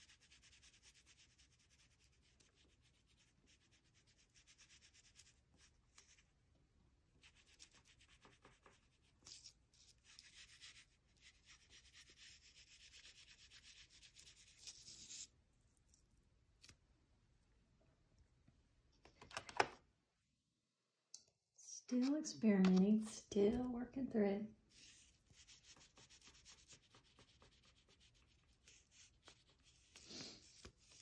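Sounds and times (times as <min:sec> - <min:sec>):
oil pastel rubbing on cardboard: 0:00.0 - 0:05.4, 0:07.3 - 0:15.3, 0:24.7 - 0:31.0.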